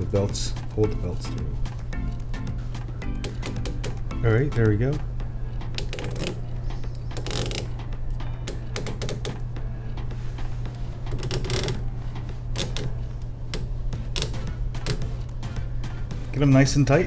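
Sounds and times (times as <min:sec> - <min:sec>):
steady low hum: 0:00.0 - 0:17.0
belt clicks and rustles: 0:05.8 - 0:07.8, 0:11.0 - 0:15.3.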